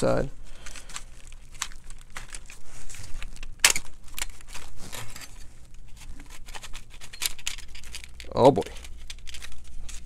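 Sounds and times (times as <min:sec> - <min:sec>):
plastic housing clicks and rattles: 0:06.3 - 0:10.0.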